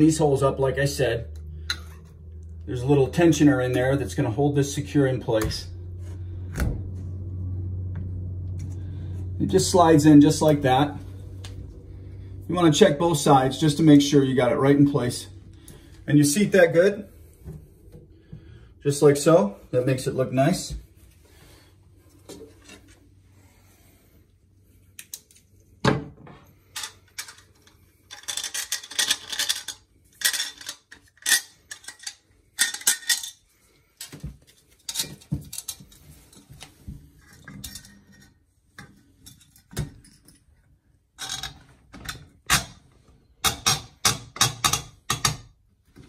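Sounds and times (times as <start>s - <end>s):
metal parts clinking and rattling: 26.7s - 36.5s, 37.2s - 38.4s, 41.2s - 42.8s.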